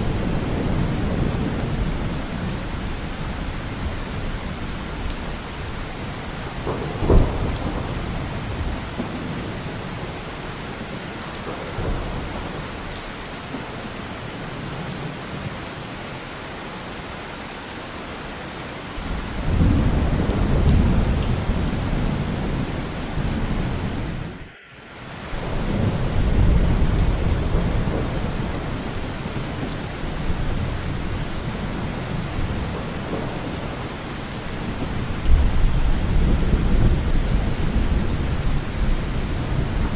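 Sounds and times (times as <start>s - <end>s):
steady rain: 0.0s - 39.9s
low rolls of thunder: 5.4s - 10.2s, 19.0s - 24.4s, 25.2s - 39.9s
sharp thunder clap: 6.6s - 9.2s.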